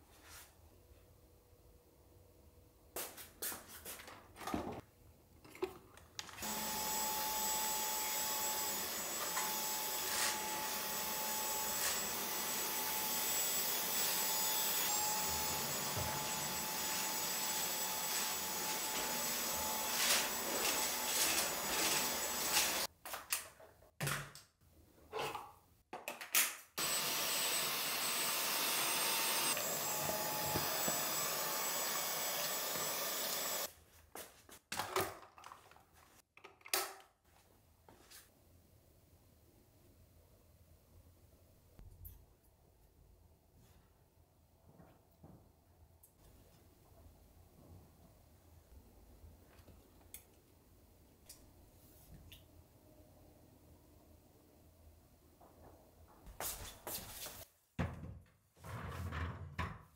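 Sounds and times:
cordless vacuum whining: 6.4 - 22.9, 26.8 - 33.7.

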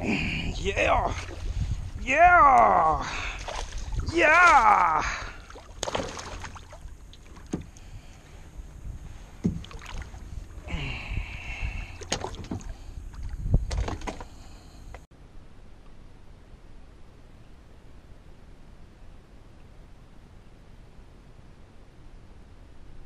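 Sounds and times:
knocks against kayak hull: 9.4 - 9.8.

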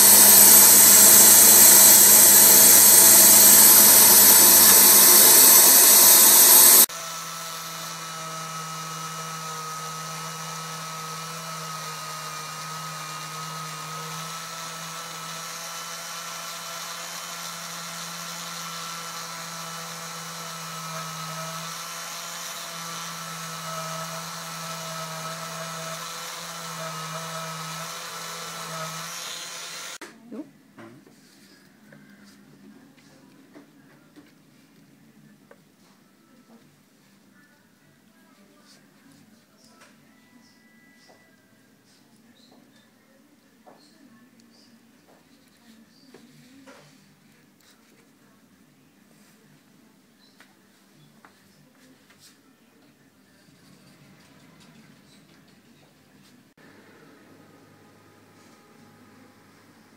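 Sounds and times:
loud machine noise: 0.0 - 6.9, 24.2 - 30.0
electric rotary drill boring stone: 0.0 - 30.0.

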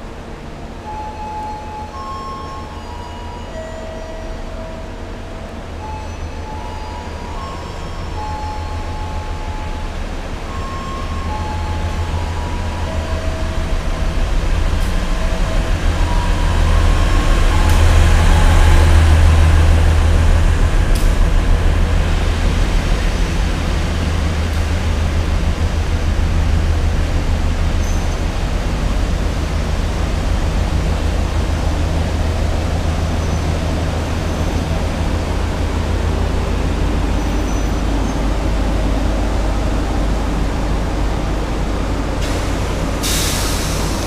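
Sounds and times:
train engine and rail rumble: 0.0 - 44.0.

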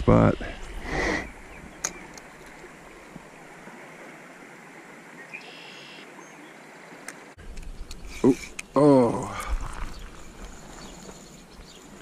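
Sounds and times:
stream water rushing: 0.6 - 7.4.

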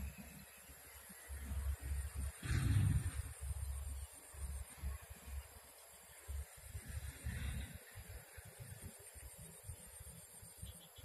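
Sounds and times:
low rumbles on microphone: 1.6 - 5.1.

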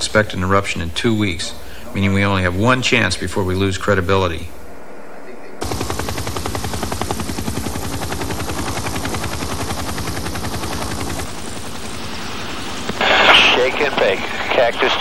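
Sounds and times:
helicopter rotor blades chopping: 5.6 - 15.0.

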